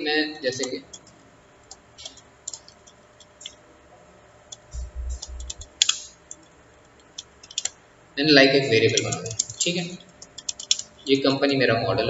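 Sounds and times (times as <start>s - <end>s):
keyboard key clicks: 4.5s - 6.4s, 7.0s - 7.7s
brief low rumble: 4.7s - 5.6s.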